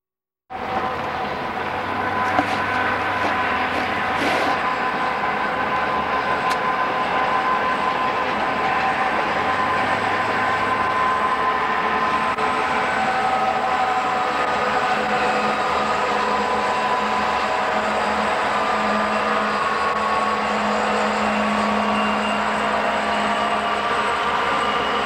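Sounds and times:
road noise: 0.5s - 18.8s
diesel locomotives roaring: 0.5s - 25.0s.

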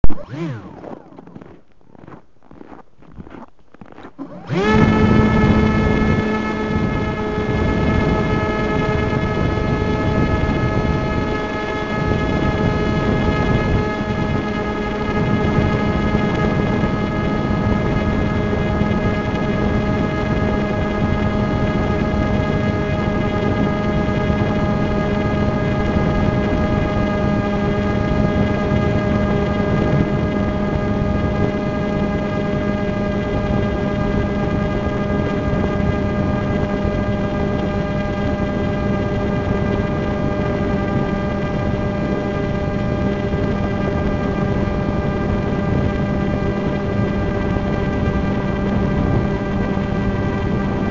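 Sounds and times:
drone propellers humming: 0.0s - 2.6s, 4.1s - 50.9s.

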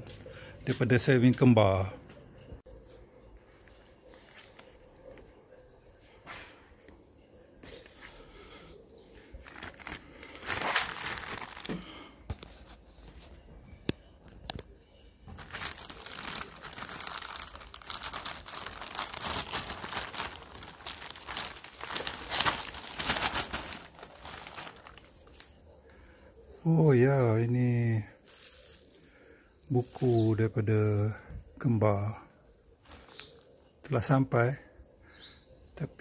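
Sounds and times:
plastic bag crinkling: 9.2s - 13.4s, 14.4s - 26.0s, 27.5s - 30.6s, 32.8s - 33.6s
bubble wrap crinkling: 9.2s - 13.5s, 14.4s - 26.0s, 27.4s - 30.7s, 32.7s - 33.6s.

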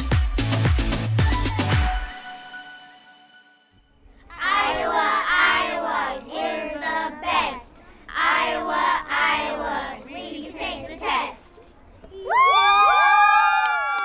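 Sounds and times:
children chanting in unison: 4.3s - 11.6s.

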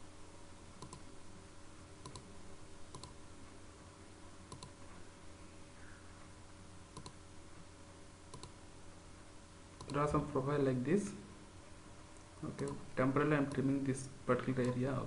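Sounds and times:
faint low hum: 0.0s - 15.0s
computer mouse clicking: 0.8s - 1.1s, 2.0s - 2.3s, 2.9s - 3.2s, 4.5s - 4.8s, 7.0s - 7.2s, 8.3s - 8.6s, 9.8s - 10.0s.

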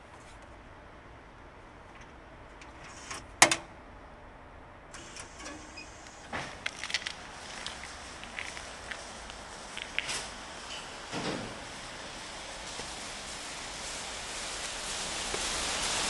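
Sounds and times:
steady hiss: 5.0s - 16.0s.

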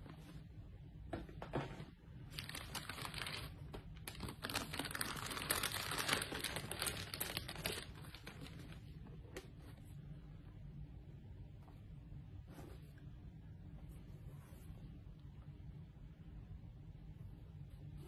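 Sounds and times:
plastic bag crinkling: 2.3s - 8.8s.

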